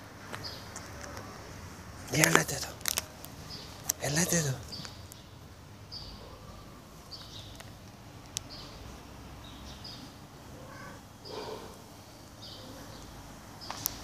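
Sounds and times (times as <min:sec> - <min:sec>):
street background noise: 0:00.0 - 0:14.0
bird chirping: 0:02.0 - 0:07.8, 0:08.4 - 0:11.7.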